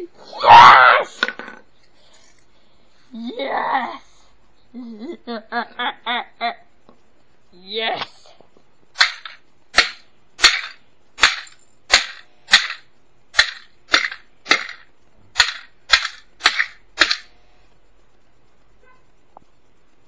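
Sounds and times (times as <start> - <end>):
plastic smashed on concrete: 9.0 - 12.8, 13.4 - 17.3.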